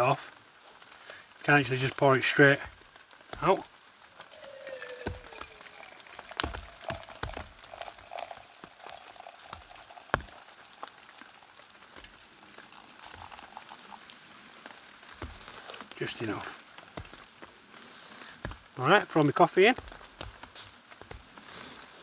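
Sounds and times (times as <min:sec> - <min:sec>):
raindrop taps: 0:01.9 - 0:13.5, 0:14.6 - 0:17.6, 0:18.2 - 0:21.5
water pouring into steel mug: 0:04.2 - 0:14.2.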